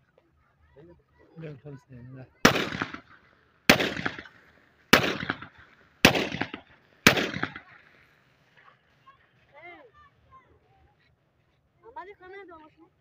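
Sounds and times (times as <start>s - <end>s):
pistol shots with echo: 2.4s - 8.1s.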